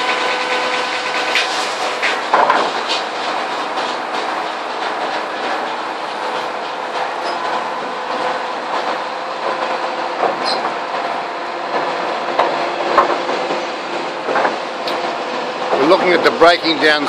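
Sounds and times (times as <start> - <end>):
circular saw cutting log: 0.0 - 17.0
rattling steel carriage: 0.0 - 17.0
sharp knocks: 1.4 - 3.0.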